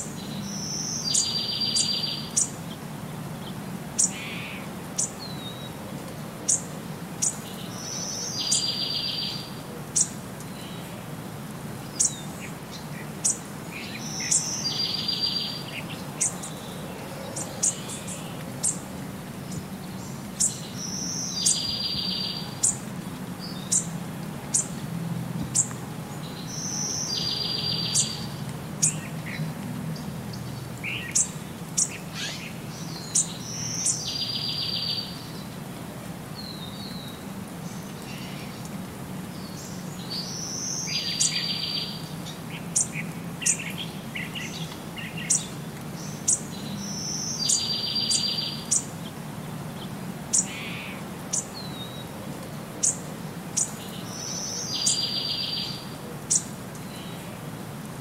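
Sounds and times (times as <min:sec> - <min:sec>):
birds singing: 0:00.0 - 0:05.8, 0:06.4 - 0:11.0, 0:11.8 - 0:24.8, 0:25.4 - 0:35.7, 0:36.4 - 0:57.4
light rain hissing: 0:00.0 - 0:58.0
bird song with buzzy trill: 0:00.2 - 0:02.5, 0:13.2 - 0:16.6, 0:20.4 - 0:22.8, 0:26.4 - 0:29.0, 0:45.2 - 0:48.8, 0:53.6 - 0:57.1.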